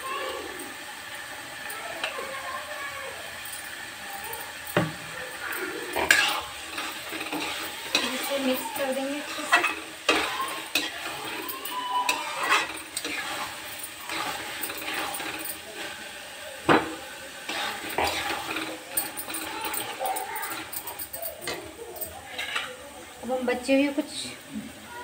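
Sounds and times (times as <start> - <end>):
metal spatula scraping pan: 5.4 - 16.0, 16.7 - 22.8
spatula knocking pan: 5.9 - 15.6, 16.6 - 20.7.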